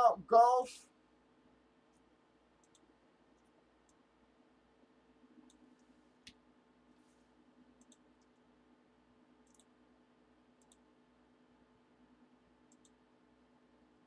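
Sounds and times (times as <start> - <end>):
low steady hum: 0.0 - 14.0
computer mouse clicks: 1.9 - 4.0, 5.4 - 6.4, 7.8 - 8.4, 9.4 - 9.8, 10.6 - 10.9, 12.7 - 13.0.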